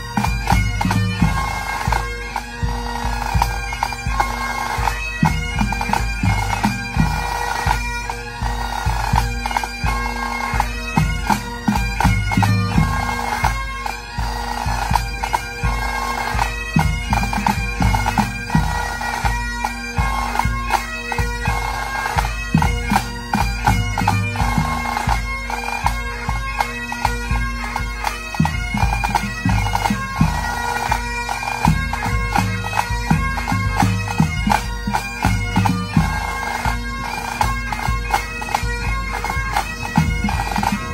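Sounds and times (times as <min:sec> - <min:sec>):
bagpipes playing: 0:00.0 - 0:40.9
snare and bass drums: 0:31.6 - 0:36.8, 0:38.9 - 0:40.9.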